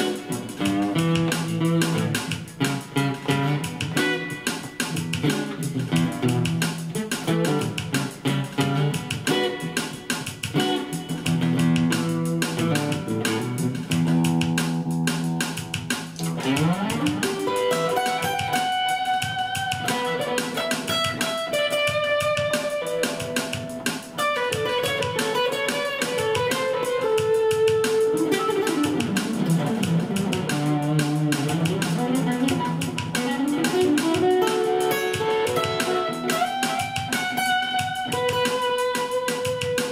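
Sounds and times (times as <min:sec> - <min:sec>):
solo funk guitar: 0:00.0 - 0:39.9.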